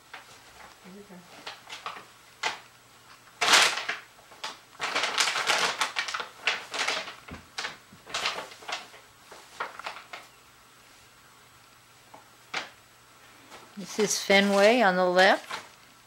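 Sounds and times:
paper bag rustling and crinkling: 0.0 - 2.6, 3.4 - 10.4, 13.4 - 16.0.

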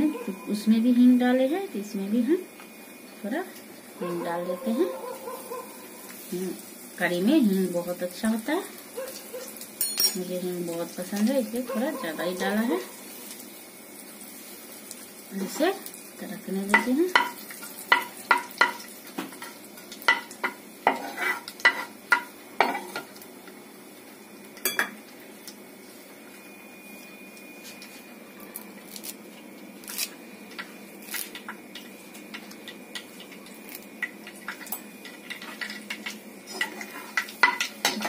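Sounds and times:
spices sizzling in hot oil: 0.0 - 38.0
metal spoon clinking against pan: 9.8 - 10.3, 34.0 - 38.0.

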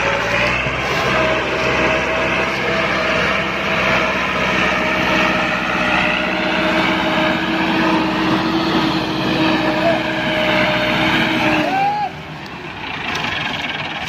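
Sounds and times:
tractor diesel engine running: 0.0 - 14.0.

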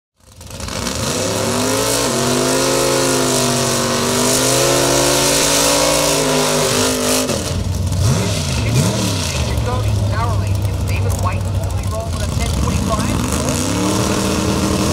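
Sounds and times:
car engine revving high: 0.2 - 14.9.

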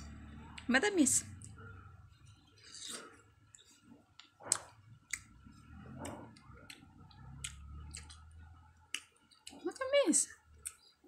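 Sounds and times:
wet chewing clicks and smacks: 3.5 - 11.0.

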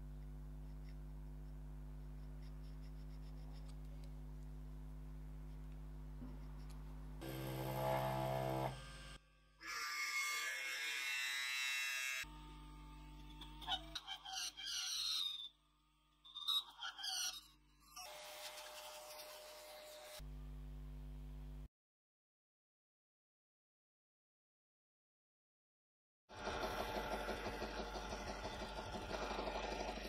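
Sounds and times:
milling machine cutting metal: 26.4 - 30.0.

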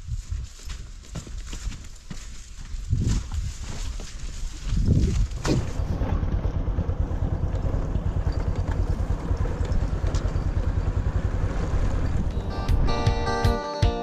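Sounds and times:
small engine running: 5.6 - 12.8.

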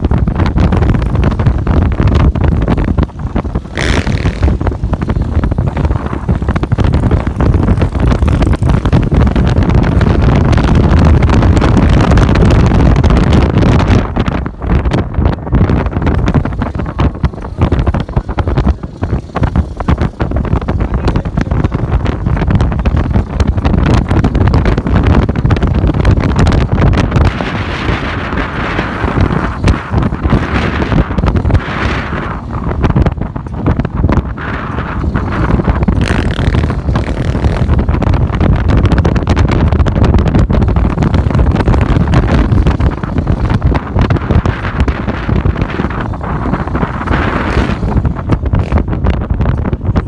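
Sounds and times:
road noise: 0.0 - 50.0
vehicle running noise: 0.0 - 50.0
wind buffeting microphone: 0.0 - 50.0.

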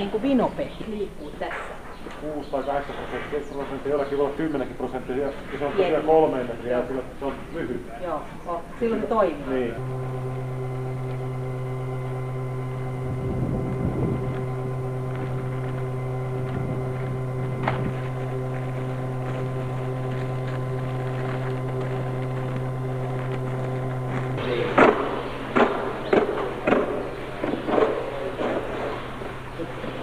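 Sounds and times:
mechanical hum: 0.0 - 30.0
wind rumbling on microphone: 12.9 - 15.8.

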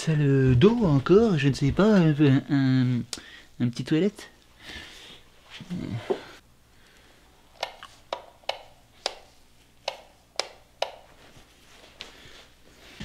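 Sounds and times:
light switch clicking: 7.6 - 11.0.

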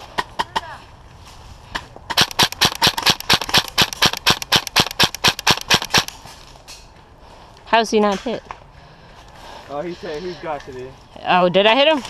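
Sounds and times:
airsoft rifle firing: 2.1 - 6.2.

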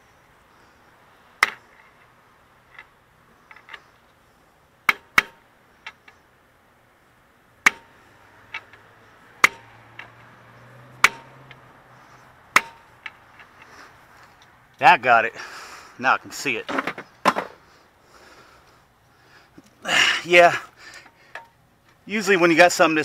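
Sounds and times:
hammer blows on metal: 11.0 - 11.5.

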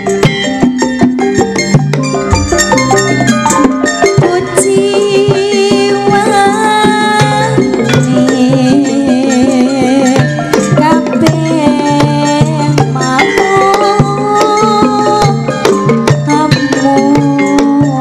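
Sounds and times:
held wavering melodic lines: 0.0 - 9.7
hand drum strokes: 0.0 - 18.0.

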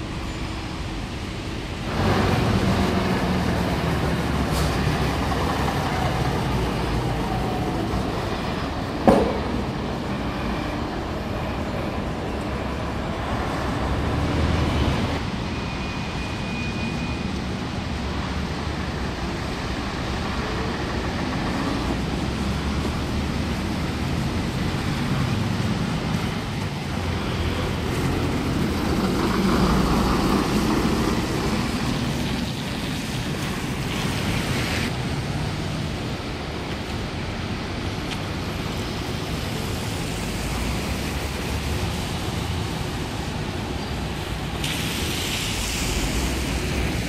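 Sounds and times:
bus diesel engines rumbling: 0.0 - 47.0
tyre hiss on wet road: 0.1 - 10.3, 22.2 - 47.0.

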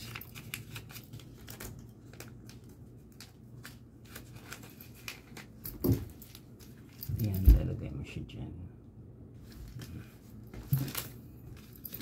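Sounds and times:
paper banknote crinkling: 0.0 - 7.0.

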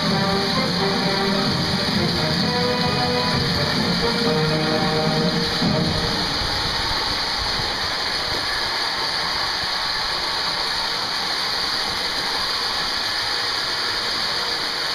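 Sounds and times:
toy train motors whirring: 0.0 - 14.9.

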